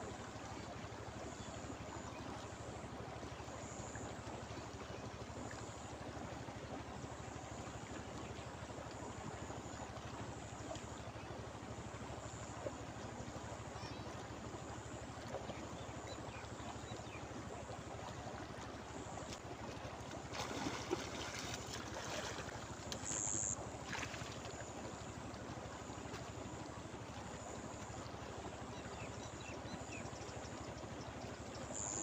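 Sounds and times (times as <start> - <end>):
fish splashing and scuffling: 20.2 - 24.3.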